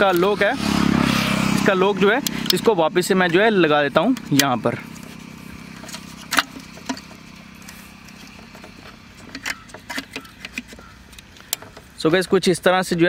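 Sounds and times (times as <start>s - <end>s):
steady low hum: 0.0s - 12.0s
small metal and plastic clicks: 5.8s - 12.0s.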